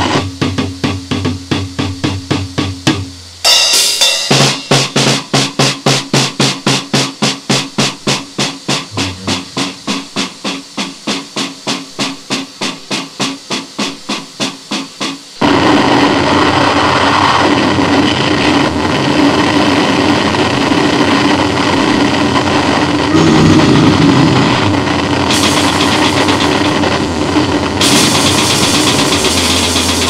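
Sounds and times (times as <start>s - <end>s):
rapid distorted pulses: 0.0s - 30.0s
harsh noise blast: 8.4s - 10.6s, 21.5s - 30.0s
low hum: 8.9s - 10.2s, 22.8s - 27.3s.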